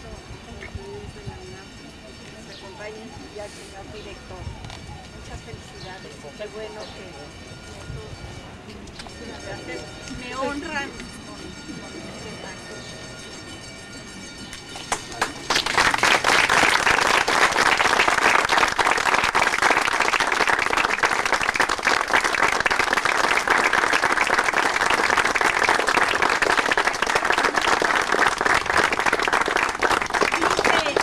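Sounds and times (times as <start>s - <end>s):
crowd applauding: 14.8s - 31.0s.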